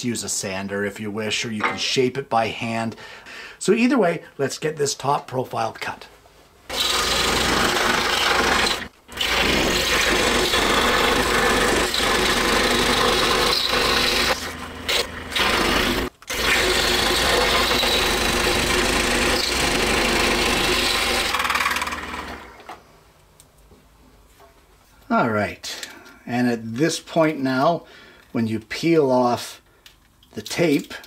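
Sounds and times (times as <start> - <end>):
scroll saw cutting wood: 6.7 - 22.7.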